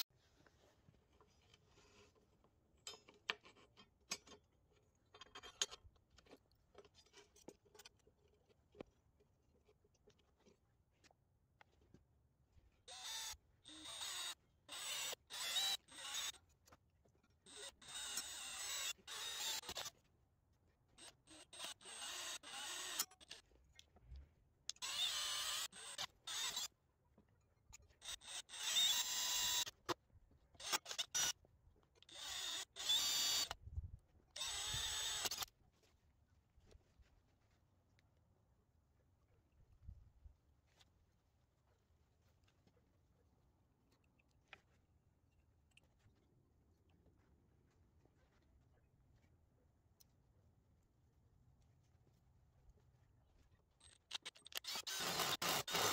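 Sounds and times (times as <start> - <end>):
power drill boring through steel: 12.9 - 16.4, 17.5 - 19.9, 21.0 - 23.4, 24.8 - 26.7, 28.0 - 29.8, 32.1 - 33.6, 34.4 - 35.5, 54.1 - 55.9.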